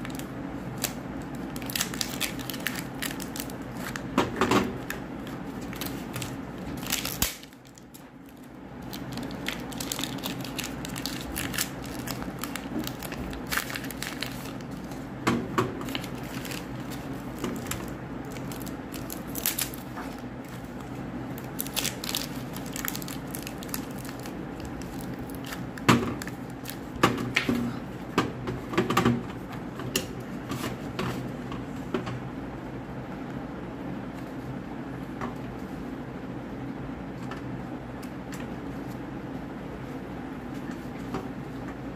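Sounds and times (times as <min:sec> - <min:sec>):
paper wrappers crinkling and tearing: 0:00.0 - 0:15.1, 0:15.7 - 0:27.4.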